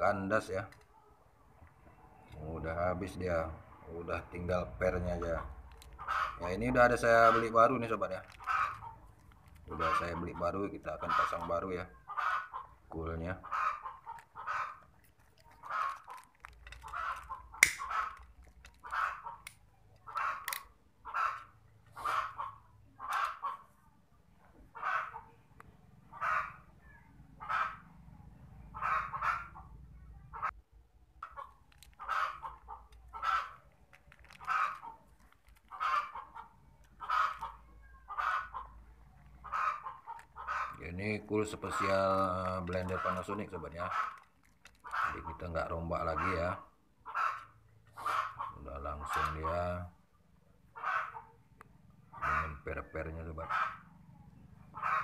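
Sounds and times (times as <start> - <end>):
fowl calling: 4.9 - 15.0, 16.8 - 23.8, 24.5 - 25.4, 26.1 - 27.9, 28.7 - 29.7, 31.2 - 33.7, 34.3 - 49.7, 50.7 - 51.4, 52.1 - 53.9, 54.7 - 55.0.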